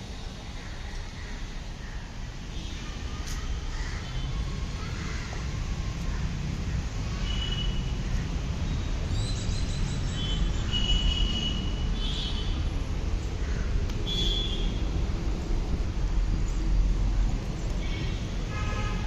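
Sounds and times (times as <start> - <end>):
low traffic rumble: 0.0 - 19.0.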